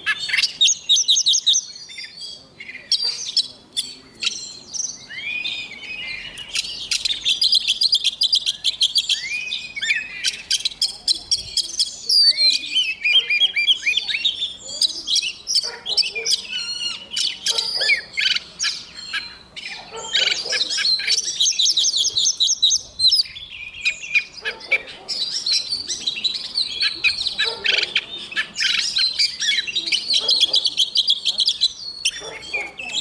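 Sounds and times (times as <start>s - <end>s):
bird singing whistled song: 0.0s - 24.4s, 25.2s - 33.0s.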